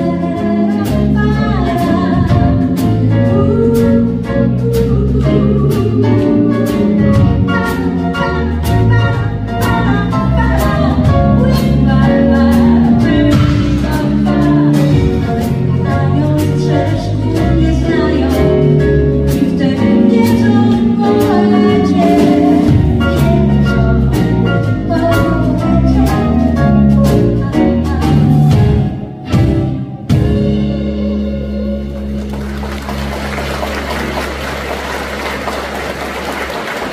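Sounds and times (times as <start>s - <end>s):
woman singing: 0.0s - 29.1s
live pop band playing: 0.0s - 36.9s.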